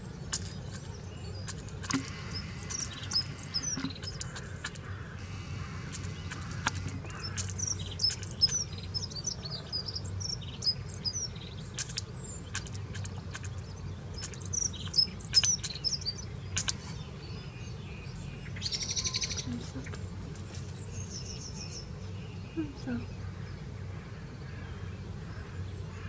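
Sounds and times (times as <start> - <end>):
small birds chirping: 0.0 - 26.0
beak pecking grain from plastic pot: 0.2 - 17.1.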